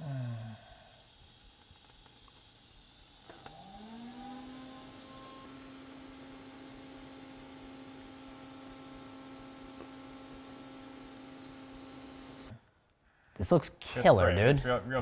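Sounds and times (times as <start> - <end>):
light hiss: 0.0 - 5.8
electrical hum: 0.0 - 13.3.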